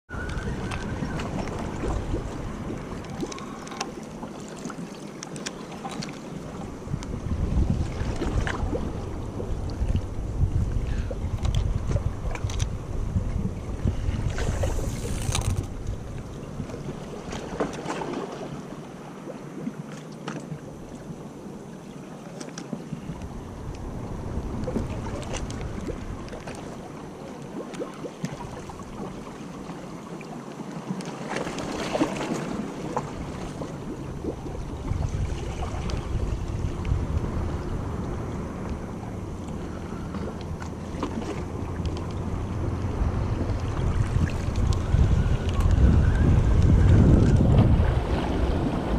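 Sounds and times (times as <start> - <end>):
wind gusting on microphone: 0.1 - 3.6, 6.5 - 17.7, 23.0 - 26.5, 32.5 - 48.9
fishing rod and reel handling: 14.3 - 16.0.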